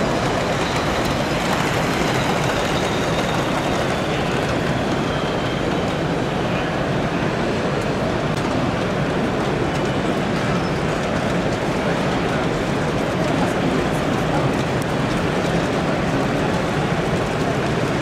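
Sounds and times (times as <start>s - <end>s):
exhibition hall background noise: 0.0s - 18.0s
model train rumbling on track: 0.0s - 18.0s.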